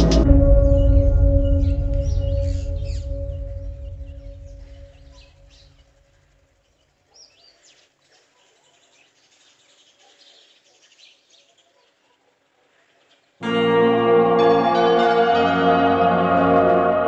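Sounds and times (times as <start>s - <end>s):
ringing music tone: 0.0s - 5.6s, 13.4s - 17.0s
small birds chirping: 6.6s - 13.4s.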